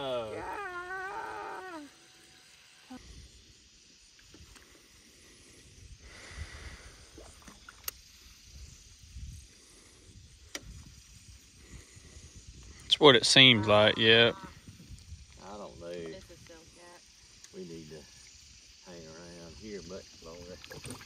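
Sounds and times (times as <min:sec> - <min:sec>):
wind on microphone: 0:05.7 - 0:16.6
water: 0:06.6 - 0:09.9, 0:12.8 - 0:21.0.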